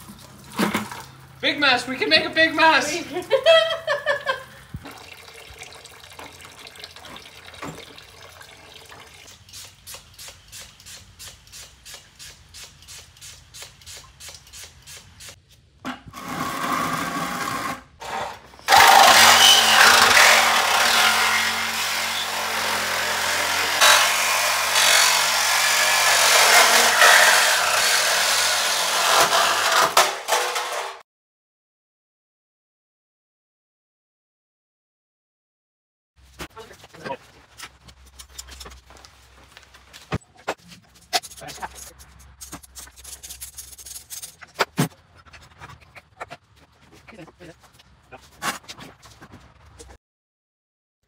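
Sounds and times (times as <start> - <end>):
power tool running: 16.2 - 31.0.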